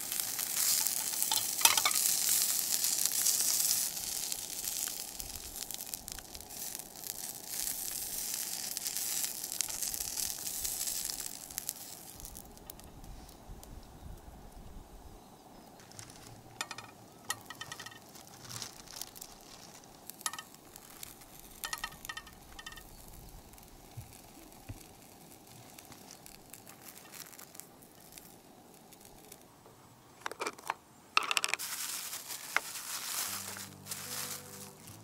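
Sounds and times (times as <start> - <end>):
rustling: 0.0 - 13.5, 15.7 - 29.5, 30.2 - 35.0
light clinks and taps: 16.6 - 18.1, 21.6 - 22.9.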